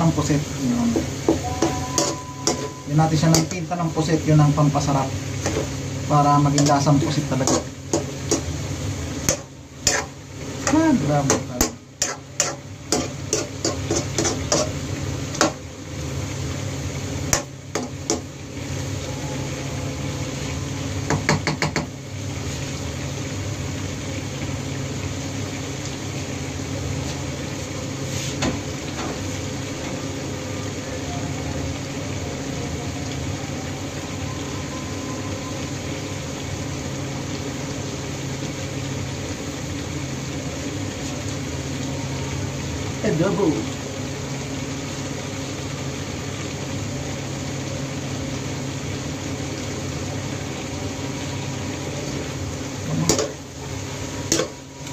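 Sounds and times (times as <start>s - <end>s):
sauce simmering: 0.0s - 54.9s
low hum: 0.5s - 7.2s.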